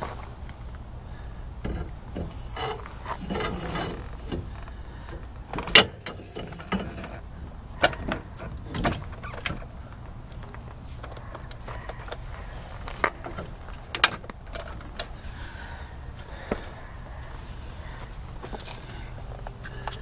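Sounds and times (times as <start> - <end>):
metal scraping and clunking: 1.6 - 15.1
metal knocks: 5.2 - 9.8.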